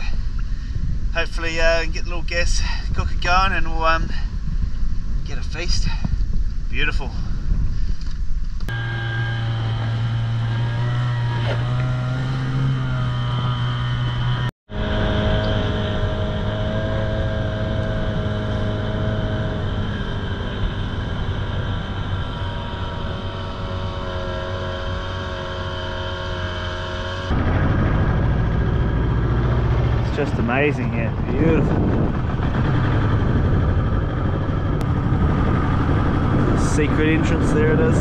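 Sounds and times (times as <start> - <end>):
outboard motor running: 8.7 - 38.0.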